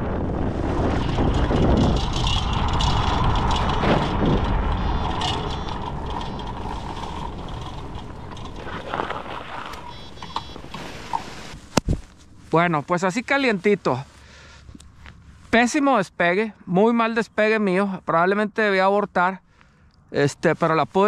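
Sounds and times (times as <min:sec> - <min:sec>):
engine and propeller drone: 0:00.0 - 0:12.5.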